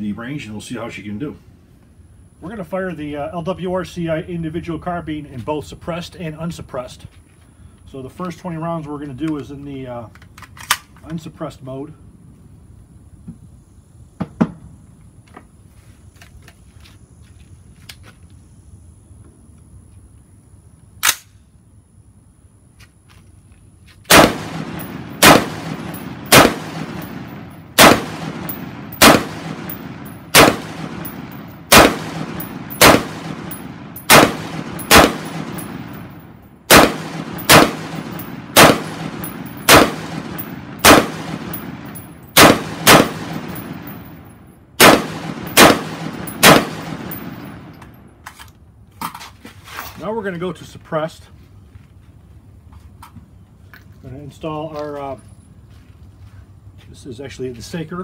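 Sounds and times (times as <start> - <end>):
rifle shots with echo: 24.1 - 47.8.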